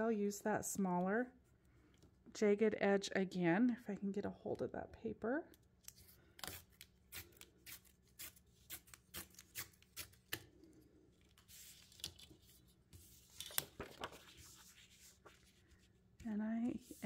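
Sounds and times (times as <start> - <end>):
paper tearing: 6.4 - 10.4
paper rustling: 11.3 - 16.1.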